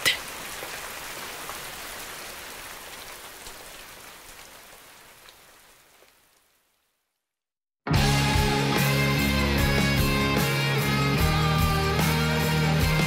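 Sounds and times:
steady rain falling: 0:00.0 - 0:07.2
music: 0:07.9 - 0:13.0.

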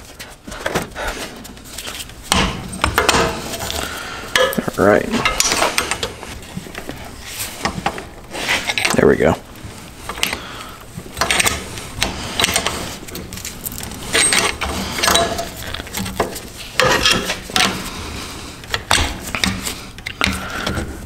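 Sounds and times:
tool prying and scraping metal: 0:02.0 - 0:07.0, 0:11.1 - 0:17.9.

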